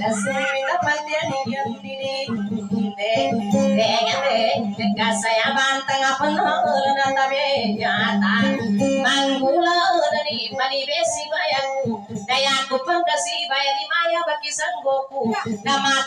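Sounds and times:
high voice singing: 0.0s - 10.3s
plucked boat lute: 0.0s - 13.3s.

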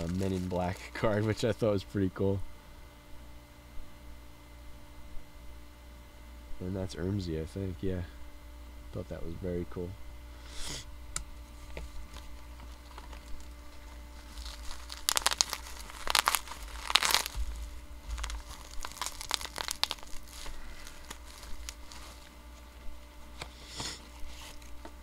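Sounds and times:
plastic packaging crinkling and tearing: 0.0s - 1.5s, 11.6s - 25.0s.

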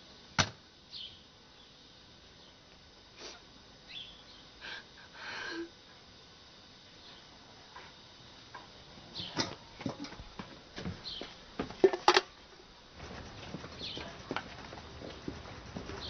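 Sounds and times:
soft sniffles: 3.2s - 3.5s
woman crying quietly: 4.6s - 5.9s.

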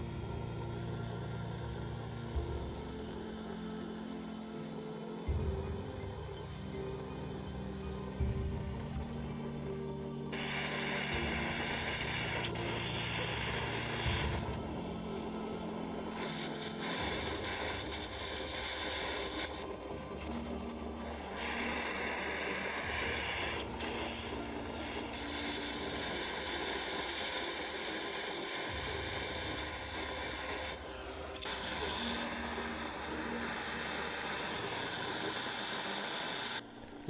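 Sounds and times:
gas torch flame hissing: 10.3s - 37.0s.

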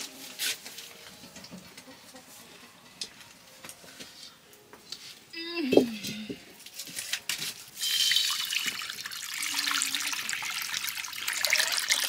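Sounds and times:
water pouring: 7.8s - 12.0s.

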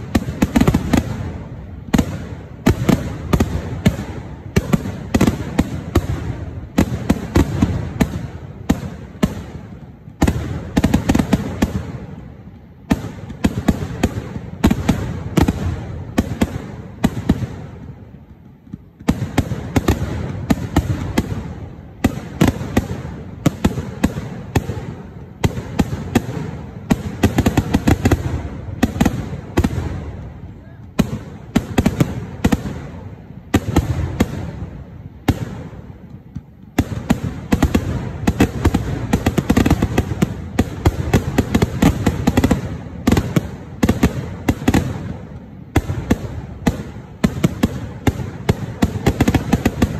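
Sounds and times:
fireworks bangs: 0.0s - 49.9s.

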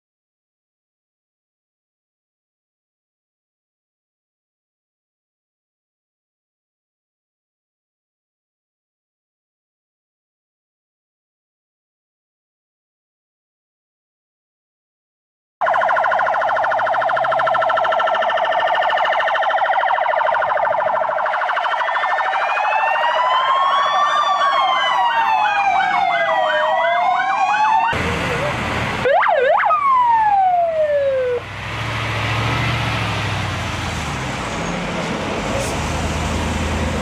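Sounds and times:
emergency sirens wailing: 15.6s - 37.0s
heavy vehicles rumbling past: 24.5s - 29.2s, 29.9s - 37.0s.

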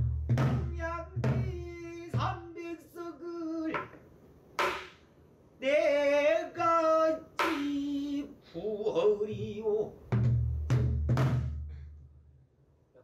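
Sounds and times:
person singing with vibrato: 0.6s - 3.8s, 5.6s - 10.0s
stick strikes on barrel drum: 4.6s - 5.0s, 7.4s - 7.8s.

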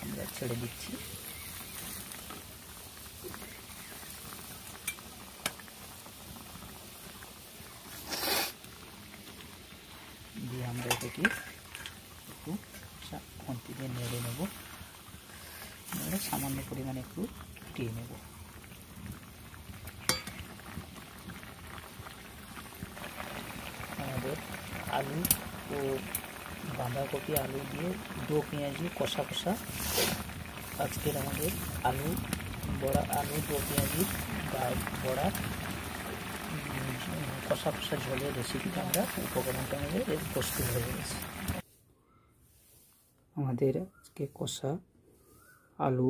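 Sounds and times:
curry boiling in a pan: 0.0s - 41.6s.

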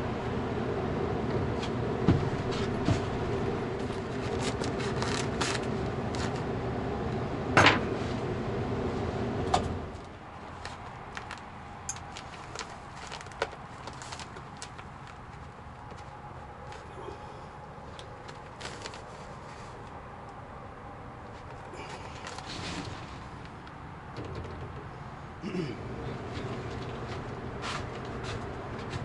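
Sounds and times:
air handler blower hum: 0.0s - 29.0s
rustles: 3.8s - 6.5s, 10.5s - 20.0s, 21.3s - 23.8s
clicks and knocks from ductwork: 9.5s - 16.1s.

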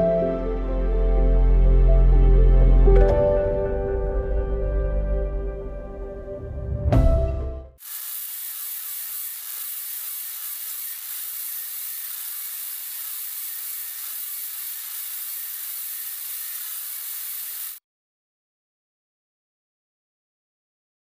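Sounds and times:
static hiss: 7.8s - 17.8s.

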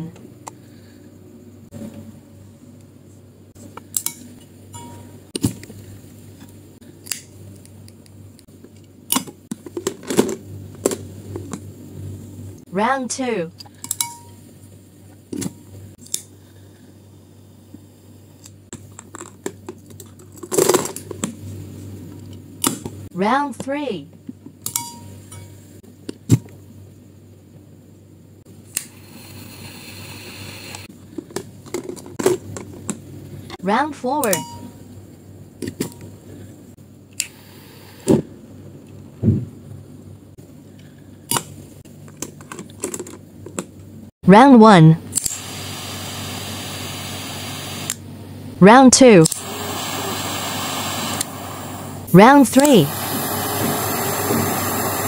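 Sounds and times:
torch lighter hissing: 28.7s - 30.9s, 37.2s - 38.2s, 45.1s - 48.0s, 49.2s - 55.0s.

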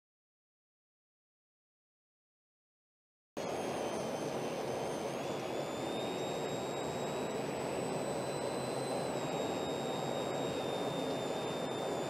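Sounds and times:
thin high whine: 3.4s - 12.0s.

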